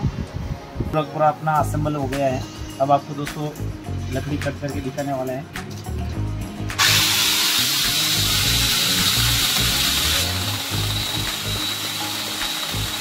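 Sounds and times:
angle grinder whining: 6.7s - 13.0s.

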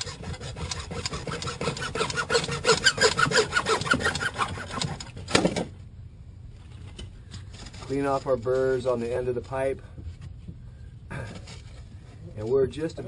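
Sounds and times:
hand saw cutting plastic pipe: 0.0s - 5.4s.

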